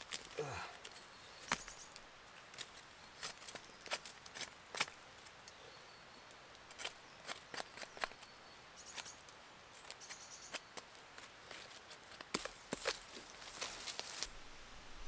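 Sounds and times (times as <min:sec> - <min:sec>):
bark cracking and splitting: 0:00.0 - 0:05.3, 0:06.6 - 0:08.3
dry leaf litter crackling: 0:00.0 - 0:05.5, 0:10.9 - 0:14.4.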